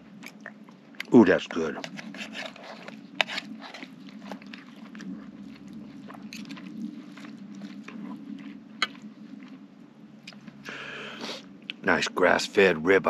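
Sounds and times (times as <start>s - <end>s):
man chewing: 0.0s - 1.1s, 1.7s - 11.8s.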